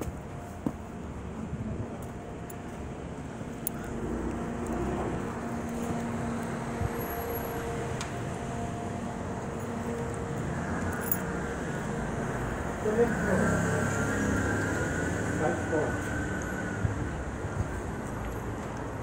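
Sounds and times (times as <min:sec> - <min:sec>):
traffic rumble: 0:00.0 - 0:19.0.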